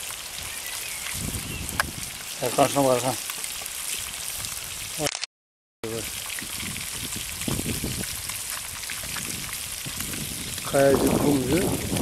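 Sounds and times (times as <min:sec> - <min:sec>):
fish sizzling in hot oil: 0:00.0 - 0:12.0.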